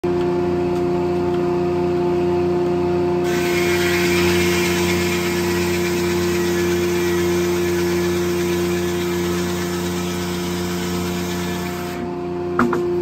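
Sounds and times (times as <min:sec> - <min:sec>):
circular saw blade humming: 0:03.2 - 0:12.2.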